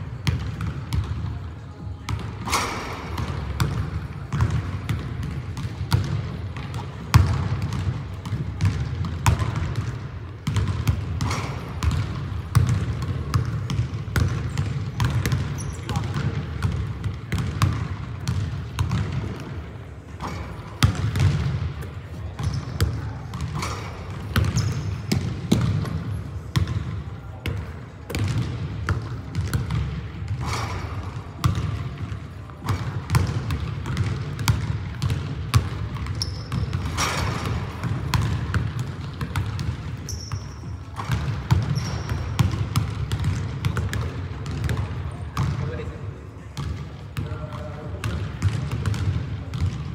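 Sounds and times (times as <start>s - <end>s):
sneakers squeaking on court: 2.1s - 45.7s
basketball bouncing on hardwood: 22.4s - 26.8s, 28.1s - 30.6s, 31.4s - 31.8s, 32.6s - 40.4s, 41.0s - 44.8s.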